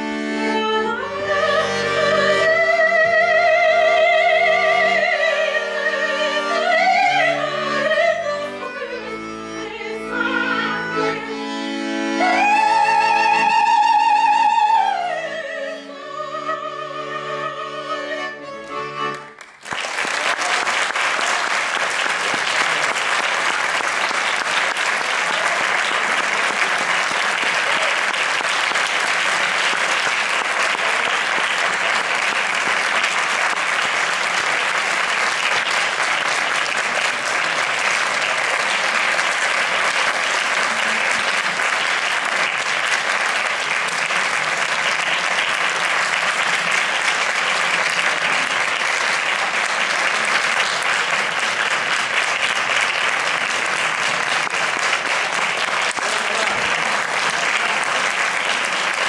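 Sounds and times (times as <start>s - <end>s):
accordion: 0.0s - 59.0s
audience applause: 19.1s - 59.0s.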